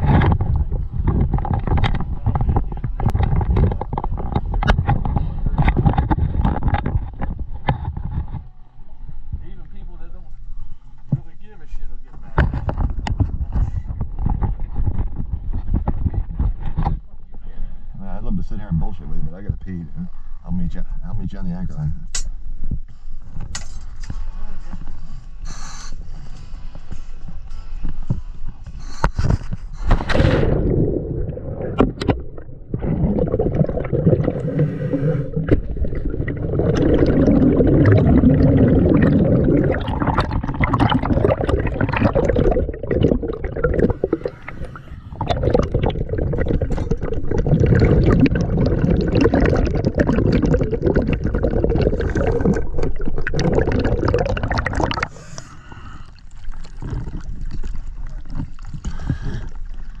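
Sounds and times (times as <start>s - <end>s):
underwater bubbles and churning: 0.0s - 8.6s, 26.0s - 60.0s.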